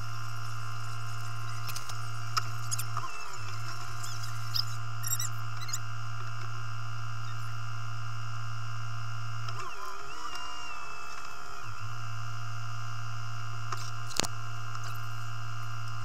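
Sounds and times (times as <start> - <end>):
engine idling drone: 0.0 - 16.0
thin whine: 0.0 - 16.0
small squeaks and clicks: 0.2 - 6.5, 7.2 - 7.6, 9.4 - 11.9, 13.7 - 16.0.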